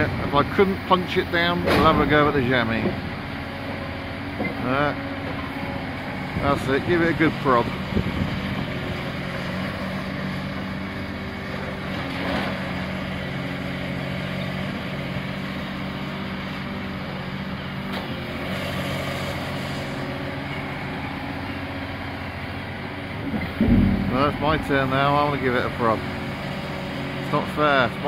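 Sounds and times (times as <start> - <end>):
diesel engine humming: 20.2 - 28.0.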